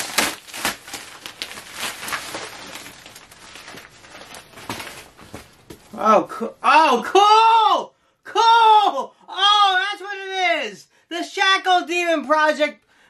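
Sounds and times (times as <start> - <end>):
paper and plastic rustling: 0.0 - 5.9.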